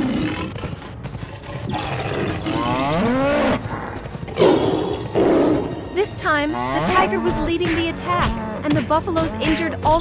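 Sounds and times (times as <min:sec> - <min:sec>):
tiger roaring: 0:00.0 - 0:06.0.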